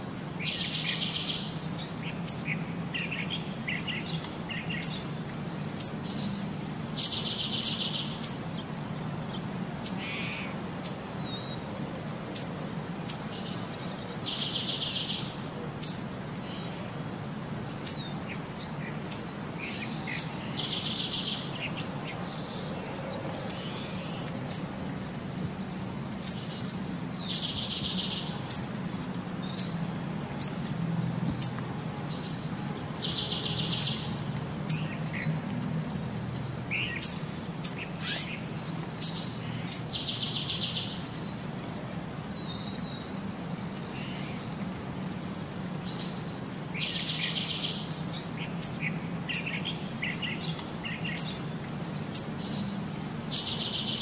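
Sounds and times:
bird chirps and trill: 0:00.0 - 0:08.4, 0:12.4 - 0:16.8, 0:17.7 - 0:24.8, 0:25.4 - 0:29.8, 0:31.4 - 0:41.3, 0:45.3 - 0:54.0.

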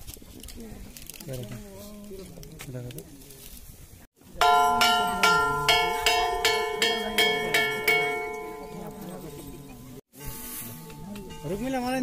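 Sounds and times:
temple bell ringing: 0:04.4 - 0:10.0.

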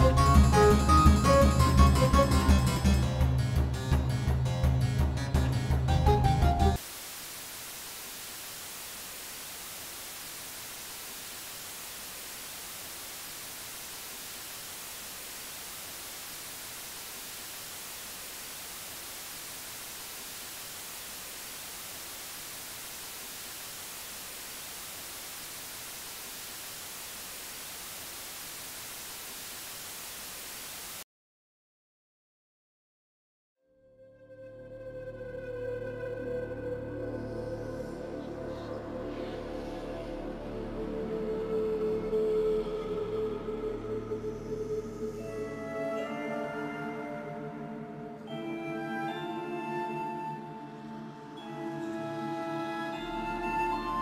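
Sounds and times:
white-noise static hiss: 0:06.2 - 0:31.0.

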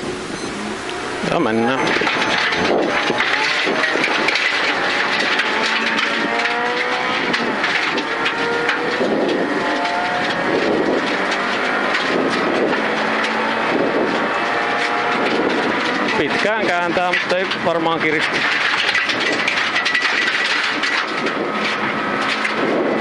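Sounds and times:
car engine revving through gears: 0:00.0 - 0:16.9
gravel rattling against car underside: 0:00.0 - 0:23.0.

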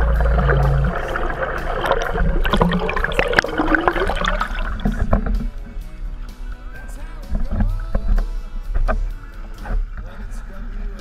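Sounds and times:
clicks and splashes: 0:00.0 - 0:05.6
underwater gurgling and sloshing: 0:00.0 - 0:06.7
low steady hum: 0:00.0 - 0:11.0.

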